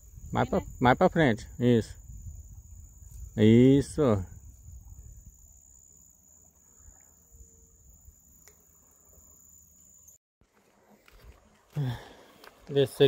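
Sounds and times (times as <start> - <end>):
high-pitched insect trill: 0.0 - 10.2.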